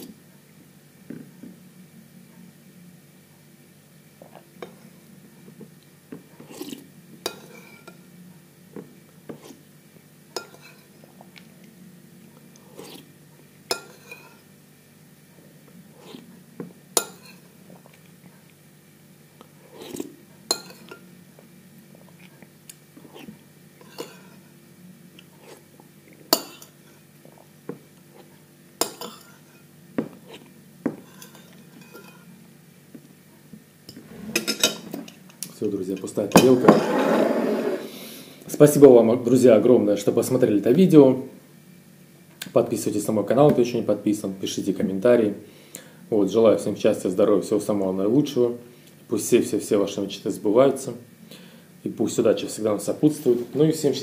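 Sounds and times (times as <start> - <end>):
soft mouth sounds of eating: 12.4 - 13.1, 15.4 - 16.4, 19.4 - 20.2, 21.4 - 24.4, 25.1 - 28.4.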